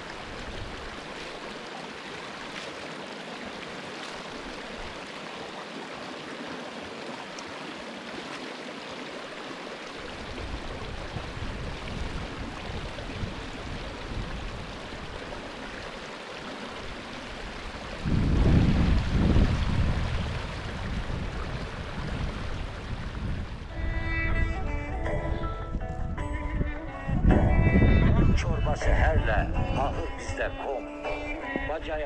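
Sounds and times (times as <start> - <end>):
stream flowing over rocks: 0.0 - 24.9.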